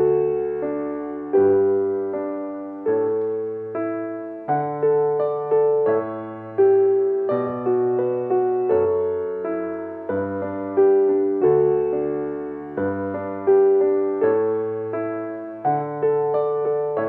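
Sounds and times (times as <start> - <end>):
grand piano melody: 0.0 - 17.0.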